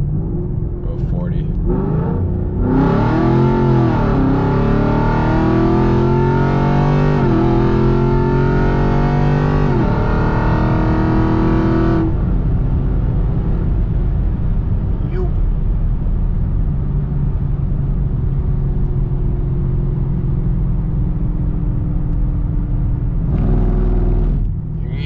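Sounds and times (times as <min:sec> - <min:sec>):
low exhaust rumble: 0:00.0 - 0:04.9, 0:12.0 - 0:25.0
car engine revving at full throttle: 0:00.0 - 0:16.2, 0:19.4 - 0:25.0
road noise: 0:00.0 - 0:25.0.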